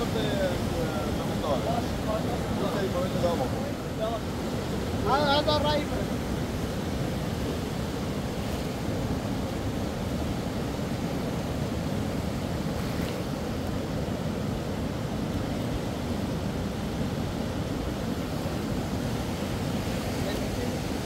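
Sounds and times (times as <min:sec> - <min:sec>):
running river water: 0:00.0 - 0:21.0.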